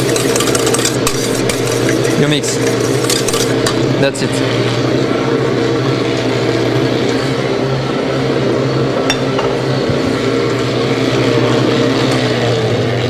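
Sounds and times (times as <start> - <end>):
utensil clinking on metal bowl: 0.0 - 4.2, 9.1 - 9.6
kitchen machinery humming: 0.0 - 13.0.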